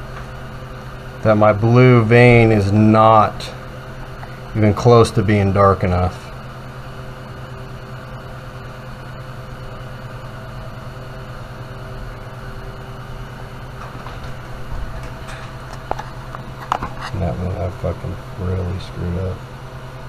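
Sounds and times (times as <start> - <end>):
steady machine hum: 0.0 - 20.0.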